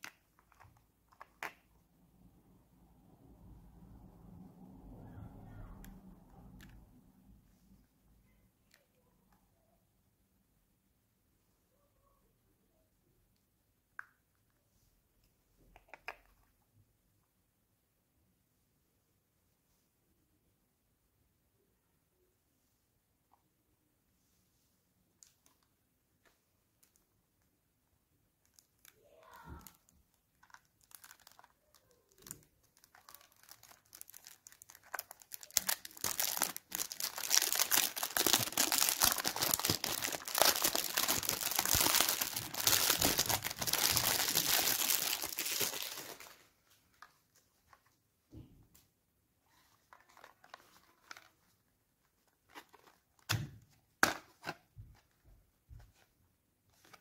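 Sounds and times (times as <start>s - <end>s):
cellophane crinkling and tearing: 28.4s - 46.5s
cardboard packaging clicks: 33.5s - 46.4s.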